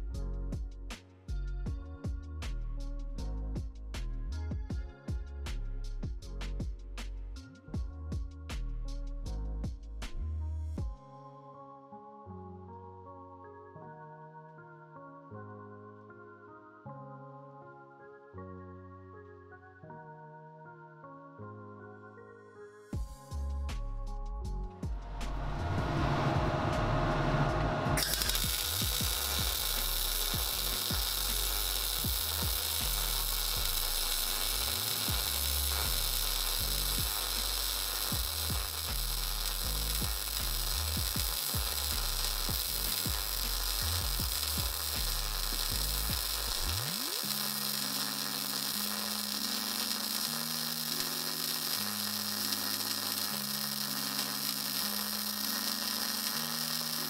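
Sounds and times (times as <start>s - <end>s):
welding arc buzzing hiss: 28.0s - 57.0s.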